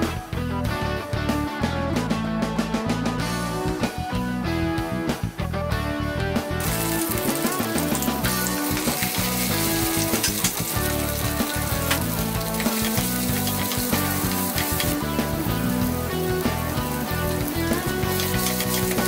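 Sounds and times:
background music: 0:00.0 - 0:19.0
small crackles: 0:06.6 - 0:15.0
hot oil sizzling: 0:06.6 - 0:19.0.

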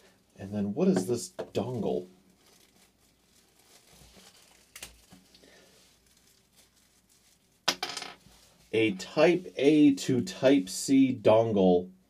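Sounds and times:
wrapper crinkling and rustling: 0:01.5 - 0:07.6.

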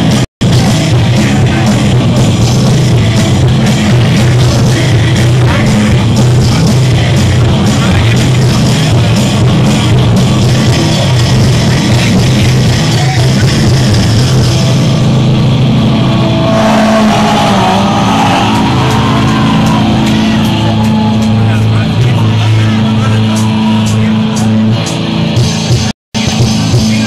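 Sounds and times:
loud metal band playing live: 0:00.0 - 0:27.0
held ringing guitar tones: 0:14.4 - 0:25.3.

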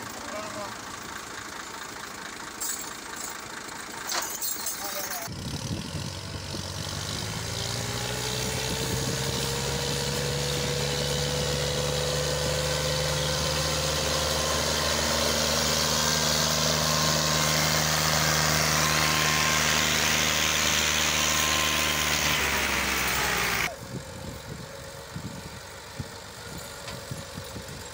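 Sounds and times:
tractor diesel engine under load: 0:00.0 - 0:27.9
rising whine: 0:05.5 - 0:25.6.

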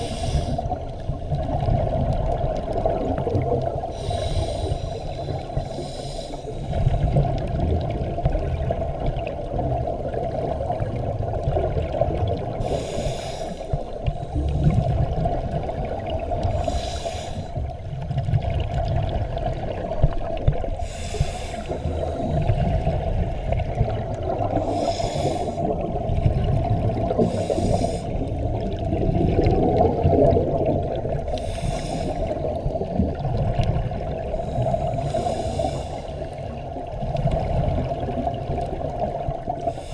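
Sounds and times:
low underwater rumble: 0:00.0 - 0:39.9
exhaled bubbles bursting: 0:00.7 - 0:03.9, 0:14.3 - 0:16.7, 0:22.0 - 0:31.3.

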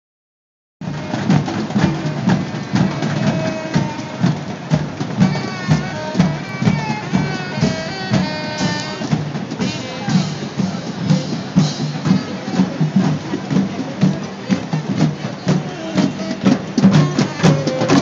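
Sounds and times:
drums beating a steady rhythm: 0:00.8 - 0:18.0.

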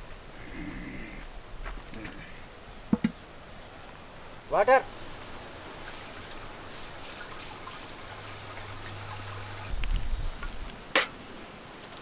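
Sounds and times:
water pouring in a trickle: 0:05.3 - 0:10.7.

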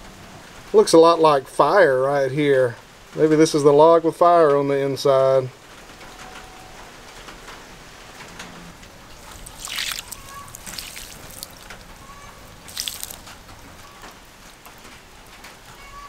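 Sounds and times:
water splashing on wood: 0:08.8 - 0:16.0.

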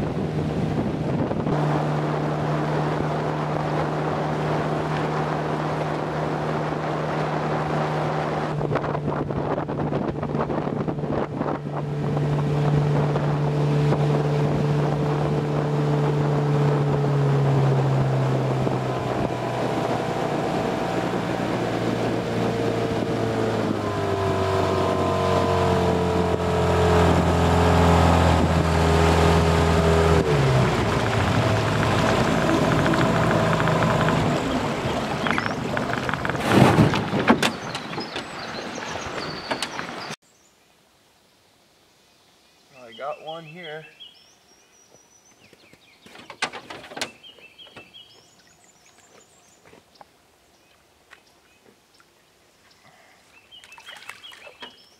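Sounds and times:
outboard motor running: 0:00.0 - 0:40.2
wind rumble on microphone: 0:00.0 - 0:40.2.

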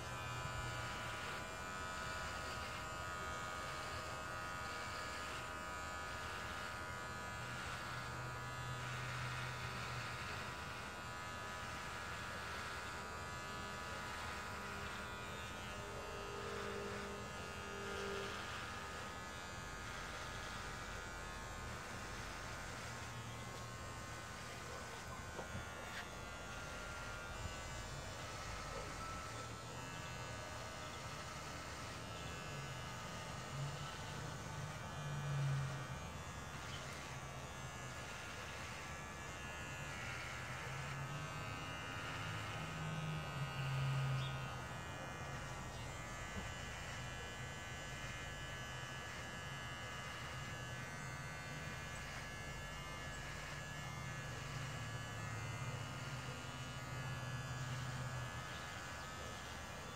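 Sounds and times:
electric hair clippers buzzing: 0:00.0 - 0:59.9.

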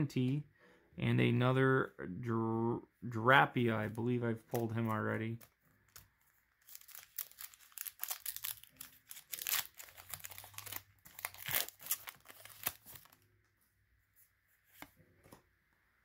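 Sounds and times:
foil wrapper crinkling: 0:05.9 - 0:13.2.

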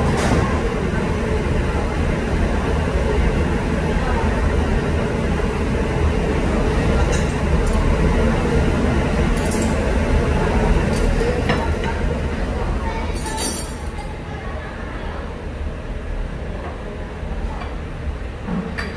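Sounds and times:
restaurant room rumble: 0:00.0 - 0:18.9
tableware clinking: 0:13.2 - 0:13.9.

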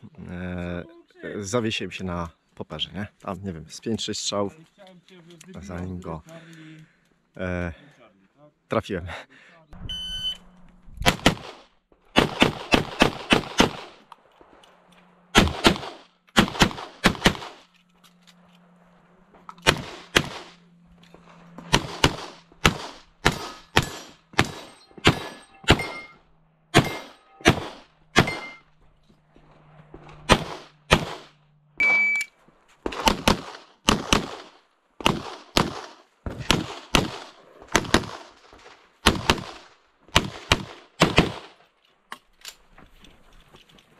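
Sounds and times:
pistol shots: 0:11.0 - 0:14.0, 0:15.3 - 0:17.6, 0:19.6 - 0:20.6, 0:21.6 - 0:28.6, 0:30.2 - 0:31.4, 0:32.8 - 0:41.6.

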